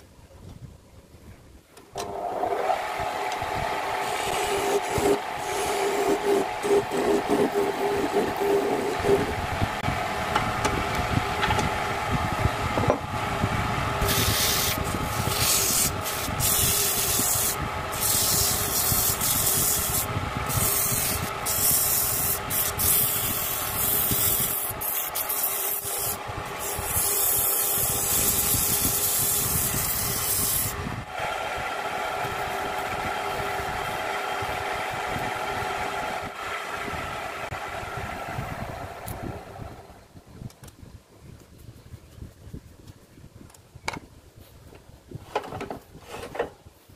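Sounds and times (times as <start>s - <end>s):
turning tool scraping wood: 2.0s - 10.8s, 14.0s - 30.8s
wood lathe motor hum: 2.0s - 40.0s.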